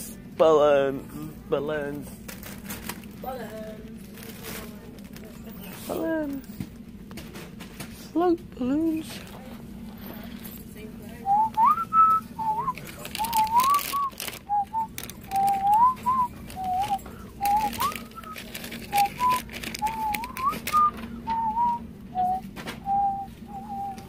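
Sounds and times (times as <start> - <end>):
man whistling: 11.3 - 24.0.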